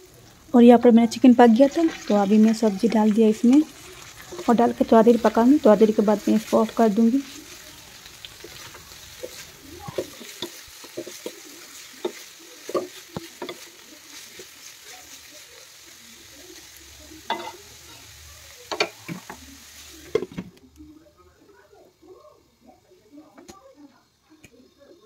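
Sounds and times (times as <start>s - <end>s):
food sizzling in a wok: 0.0s - 25.0s
wooden spatula scraping a pan: 3.8s - 15.7s.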